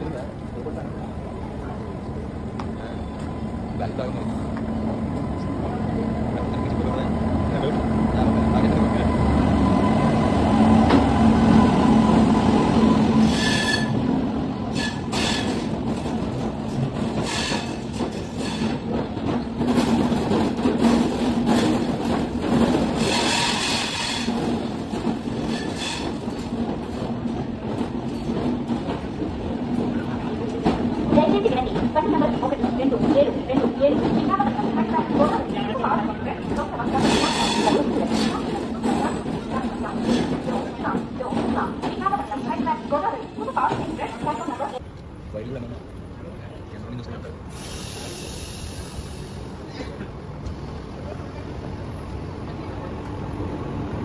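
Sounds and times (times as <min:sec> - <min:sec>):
train rumbling past: 0:00.0 - 0:54.0
train wheel squeals: 0:11.6 - 0:14.0, 0:14.7 - 0:15.7, 0:17.2 - 0:18.8, 0:23.0 - 0:24.4, 0:25.4 - 0:26.2, 0:37.0 - 0:40.3.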